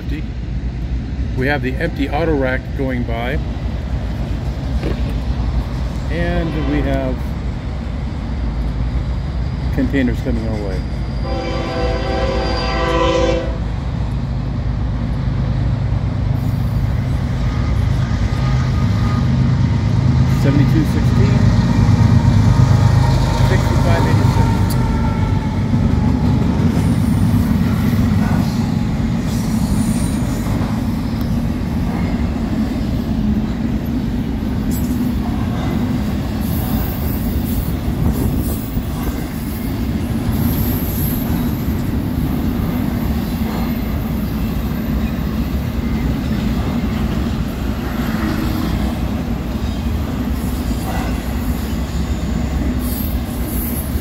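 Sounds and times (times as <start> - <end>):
train wheels rumbling on rails: 0.0 - 54.0
high wheel squeals: 9.4 - 11.4.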